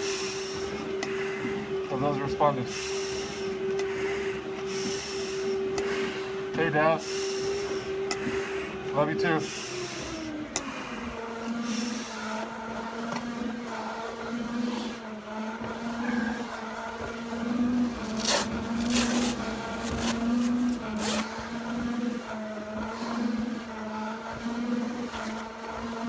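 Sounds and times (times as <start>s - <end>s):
pulsing machine hum: 0.0s - 26.0s
heavy breathing through face mask: 0.6s - 1.8s, 2.6s - 6.4s, 7.0s - 8.9s, 9.5s - 11.2s.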